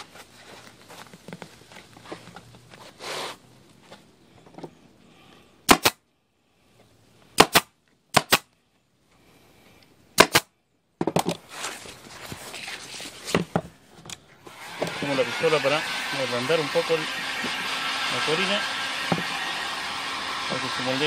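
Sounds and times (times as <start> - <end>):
vinyl rustling: 0.0 - 4.8, 11.3 - 14.3.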